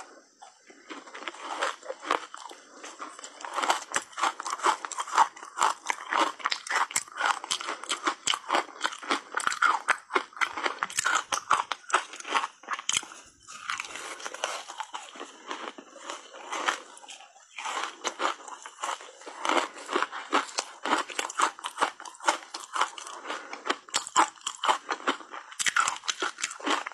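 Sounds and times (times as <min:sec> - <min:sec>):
ice crunching being chewed: 0:00.0 - 0:26.9.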